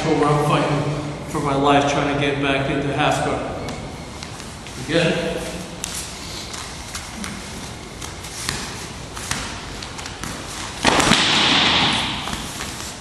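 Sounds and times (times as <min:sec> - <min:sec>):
bare feet shuffling on mat: 0:04.2 - 0:11.1.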